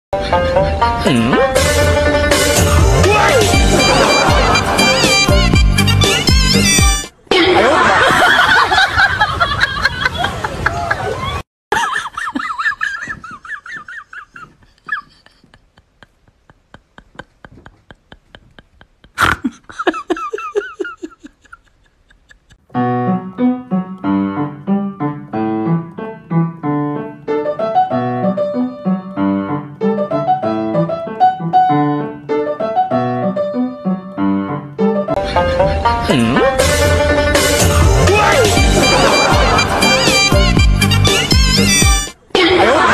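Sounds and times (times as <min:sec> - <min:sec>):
piano music: 0:00.2 - 0:07.1, 0:22.7 - 0:42.2
wavering voice-like sounds: 0:02.8 - 0:05.2, 0:35.2 - 0:37.0, 0:37.8 - 0:40.0.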